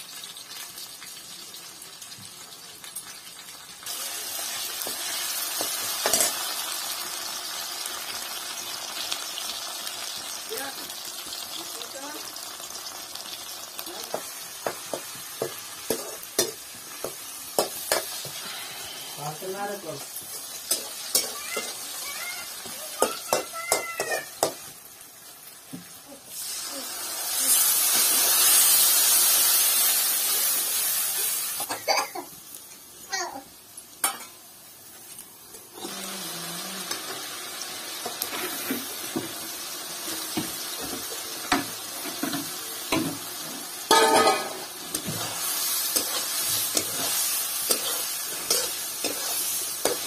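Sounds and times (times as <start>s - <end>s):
onions sizzling in hot oil: 0.0s - 50.0s
steel spoon stirring: 20.3s - 21.8s, 43.9s - 50.0s.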